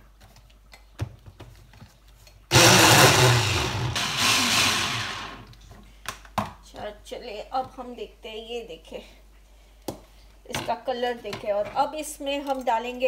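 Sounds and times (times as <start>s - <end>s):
chopper motor whirring: 2.5s - 5.5s.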